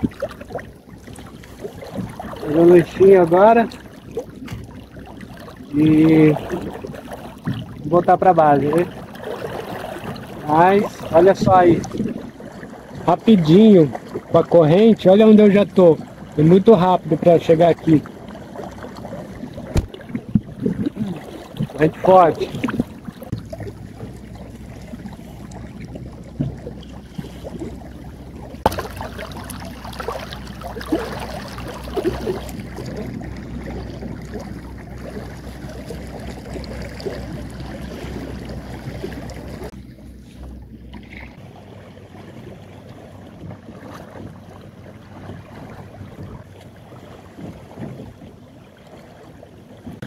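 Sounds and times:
water washing past hull: 0:00.0 - 0:50.0
wind on microphone: 0:05.7 - 0:13.2, 0:19.0 - 0:24.0, 0:45.1 - 0:48.4.

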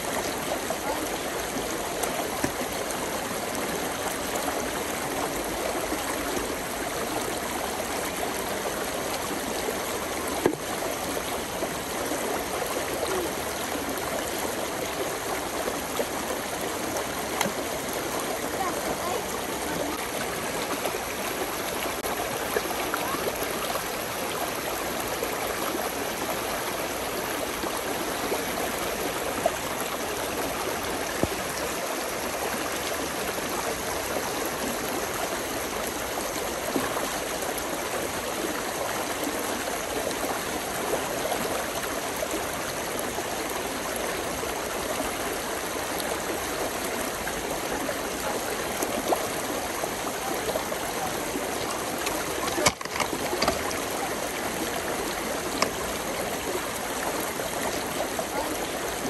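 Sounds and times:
brook babbling: 0:00.0 - 0:59.0
water splashing: 0:48.9 - 0:58.6.

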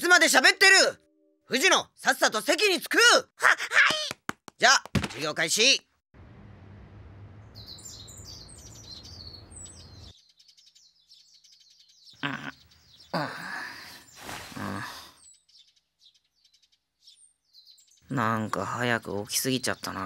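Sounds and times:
small birds chirping: 0:07.4 - 0:20.0
person murmuring: 0:12.2 - 0:15.2.

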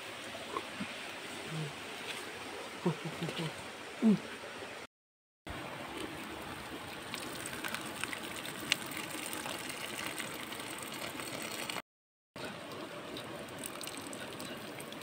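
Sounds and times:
stream water rushing: 0:00.0 - 0:04.9, 0:05.5 - 0:11.8
rice and water pouring into basket: 0:06.0 - 0:11.8.

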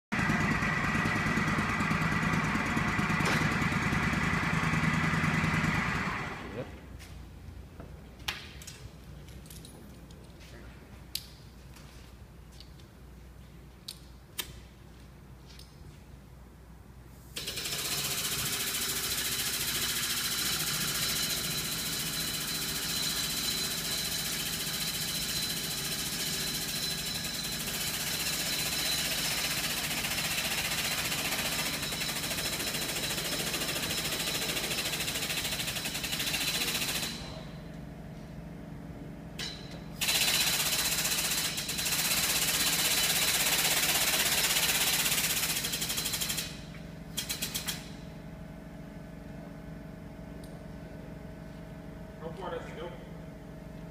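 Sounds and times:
air hydraulic pump hissing and rattling: 0:40.0 - 0:48.0.

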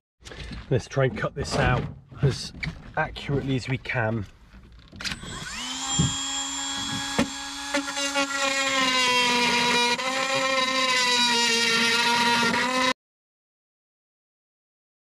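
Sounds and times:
power tool whining: 0:04.9 - 0:13.0
rough cutting noise: 0:05.0 - 0:13.0.

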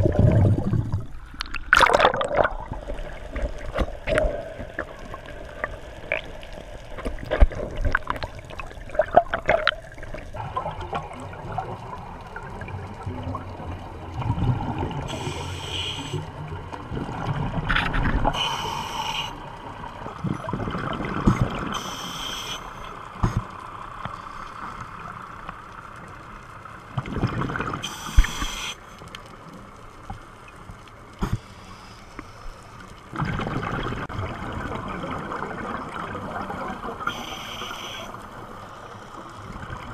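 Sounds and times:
hissing exhaled bubbles: 0:00.0 - 0:05.3
underwater splashing and bubbles: 0:00.0 - 0:39.9
scuba regulator breathing: 0:15.1 - 0:16.3, 0:18.3 - 0:19.4, 0:21.8 - 0:22.9, 0:27.8 - 0:28.9, 0:37.1 - 0:38.3.

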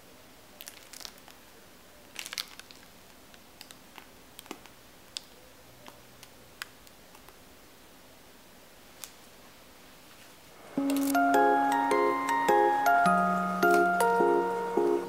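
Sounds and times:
crackles: 0:00.5 - 0:07.5, 0:10.1 - 0:15.0.

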